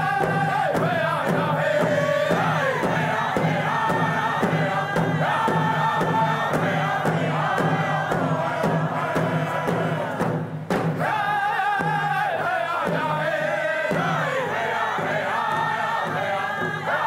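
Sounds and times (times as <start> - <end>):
frame drum beats: 0.0 - 17.0
singers chanting together: 0.0 - 17.0.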